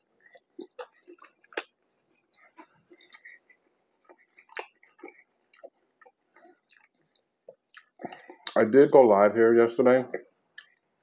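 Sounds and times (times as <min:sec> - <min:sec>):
person chewing with mouth closed: 0:00.0 - 0:08.6, 0:10.5 - 0:10.8.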